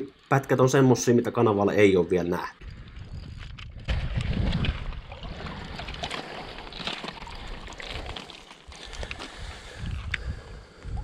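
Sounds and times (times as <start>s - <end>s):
low wind rumble: 2.6s - 6.5s, 7.2s - 11.0s
water lapping on rocky shore: 2.6s - 11.0s.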